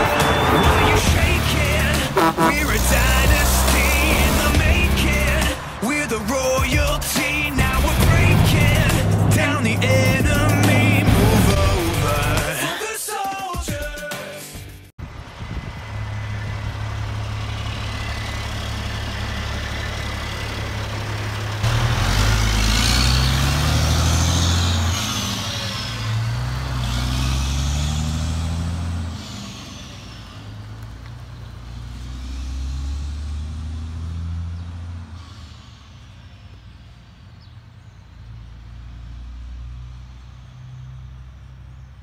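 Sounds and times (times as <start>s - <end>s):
high whine: 0.0s - 5.6s, 6.7s - 12.4s
truck diesel engine: 0.0s - 13.0s, 14.9s - 42.0s.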